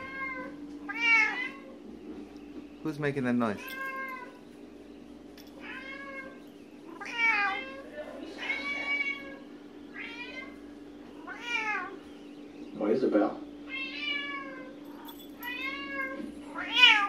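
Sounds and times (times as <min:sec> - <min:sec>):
cat meowing: 0:00.0 - 0:01.7, 0:03.6 - 0:04.4, 0:05.6 - 0:12.0, 0:13.7 - 0:14.8, 0:15.4 - 0:17.0.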